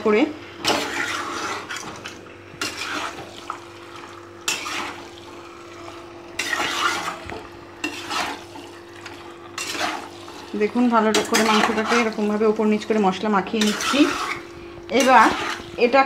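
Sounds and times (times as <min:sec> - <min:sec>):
metal spatula scraping a pan: 0:00.6 - 0:01.9, 0:02.6 - 0:03.3, 0:04.4 - 0:05.1, 0:06.4 - 0:10.3, 0:11.0 - 0:12.3, 0:13.4 - 0:15.9.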